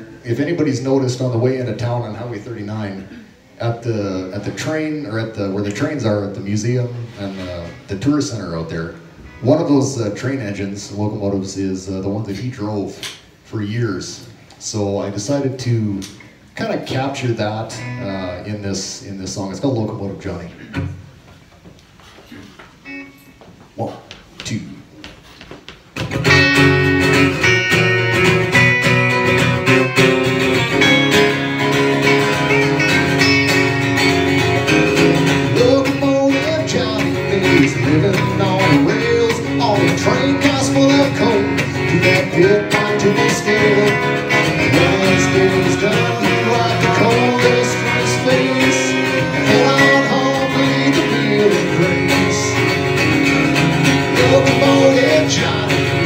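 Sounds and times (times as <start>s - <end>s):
electric and acoustic guitars: 0.0s - 56.0s
person singing: 35.1s - 53.1s, 53.8s - 56.0s.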